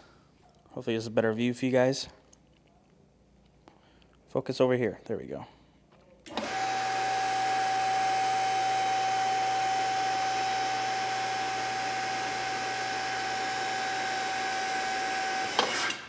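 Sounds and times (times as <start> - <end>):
hydraulic pump whining: 6.3 - 16.0.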